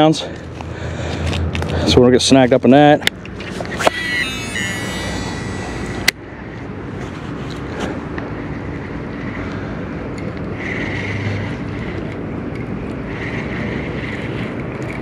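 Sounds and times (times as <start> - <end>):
fishing reel gears whirring: 3.4 - 6.1
high whine: 3.6 - 6.2.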